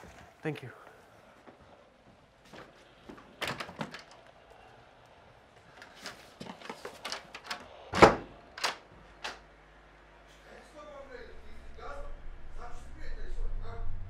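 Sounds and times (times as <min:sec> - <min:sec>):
door clicks and knocks: 0:07.0 - 0:09.4.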